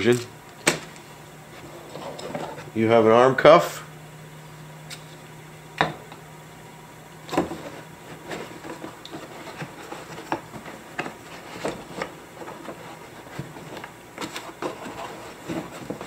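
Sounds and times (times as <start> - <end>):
packaging scrapes and rustles: 7.6 - 16.0.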